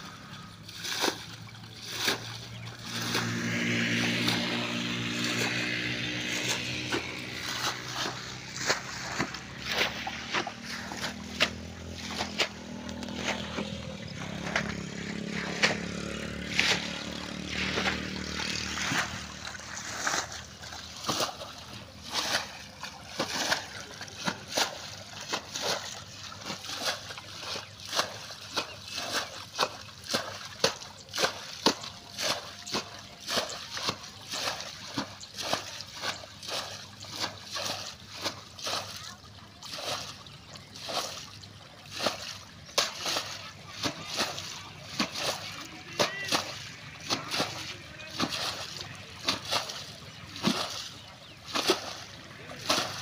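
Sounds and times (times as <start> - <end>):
water splashing from pans: 0.0 - 53.0.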